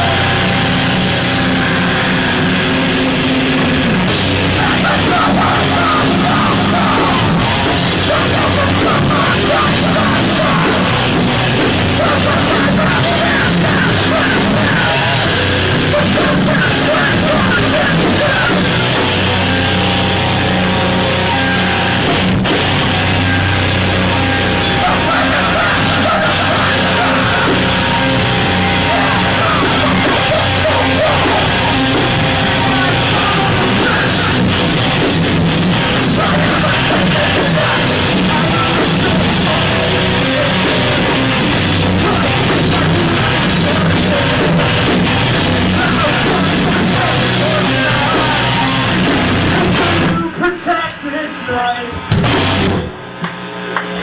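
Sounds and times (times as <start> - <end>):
distorted electric guitar: 0.0 - 54.0
drums: 0.0 - 54.0.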